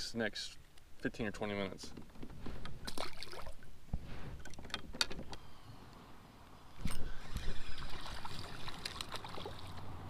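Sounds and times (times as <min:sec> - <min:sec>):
spinning reel whirring: 0:06.8 - 0:08.5.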